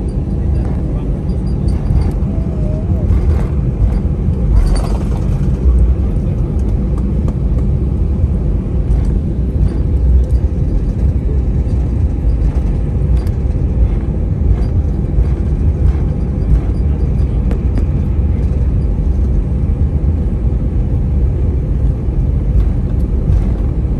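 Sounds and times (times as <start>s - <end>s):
faint clicks and rattles: 0.0s - 7.9s, 8.8s - 19.6s
aircraft cabin low rumble: 0.0s - 23.9s.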